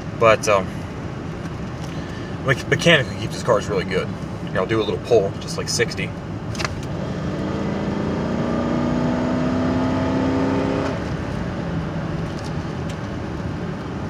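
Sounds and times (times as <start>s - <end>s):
car engine accelerating: 6.5s - 14.0s.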